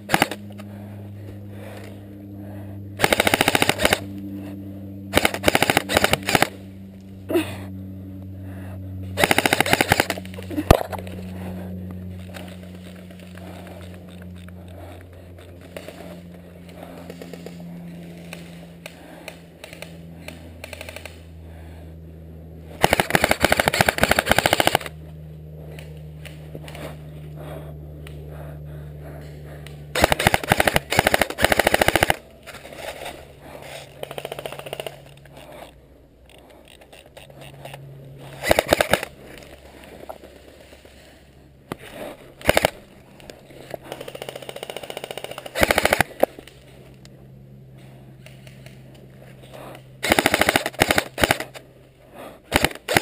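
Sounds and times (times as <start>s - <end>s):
airsoft guns firing bursts: 0.0s - 0.6s, 3.0s - 4.2s, 5.1s - 6.6s, 9.1s - 10.5s, 16.9s - 21.2s, 22.8s - 25.0s, 29.9s - 35.1s, 38.4s - 39.1s, 42.4s - 42.9s, 43.8s - 46.4s, 50.0s - 51.6s, 52.5s - 53.0s.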